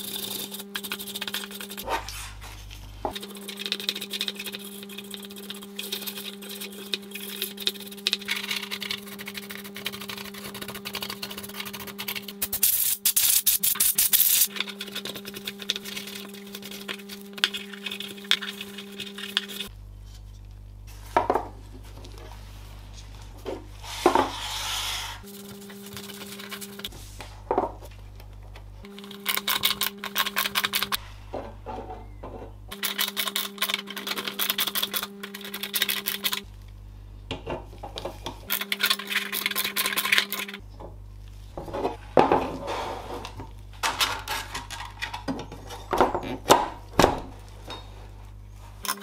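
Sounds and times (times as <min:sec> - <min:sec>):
brush scrubbing plastic fan: 0:00.0 - 0:13.0, 0:13.7 - 0:21.1, 0:21.8 - 0:27.3
steady low hum: 0:00.0 - 0:49.0
cloth wiping fan: 0:21.8 - 0:27.4.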